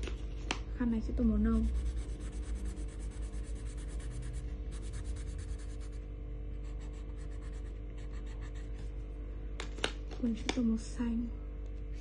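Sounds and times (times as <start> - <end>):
colouring tool scratching on paper: 1.5 - 6.0, 6.6 - 8.8.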